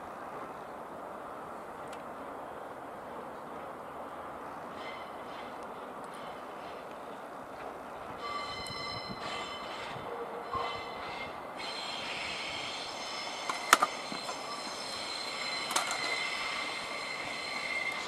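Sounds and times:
train wheels squealing: 4.7 - 6.8, 8.2 - 18.0
wheels clacking over rail joints: 13.3 - 18.0.

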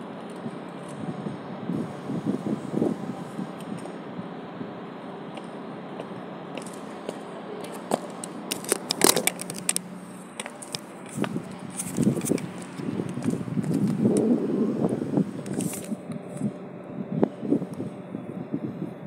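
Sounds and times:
phone handling clicks and crackles: 8.5 - 9.8.

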